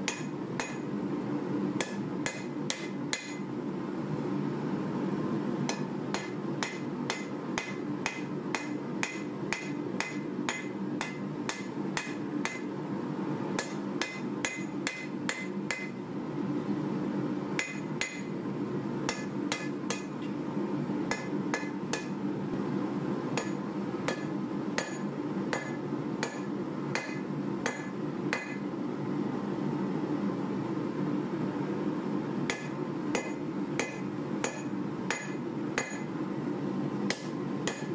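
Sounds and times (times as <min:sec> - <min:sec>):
hammer striking anvil: 0:00.1 - 0:00.8, 0:01.8 - 0:03.4, 0:05.7 - 0:12.7, 0:13.6 - 0:16.0, 0:17.6 - 0:18.3, 0:19.1 - 0:20.2, 0:21.1 - 0:22.2, 0:23.4 - 0:28.6, 0:32.5 - 0:36.1, 0:37.1 - 0:37.9.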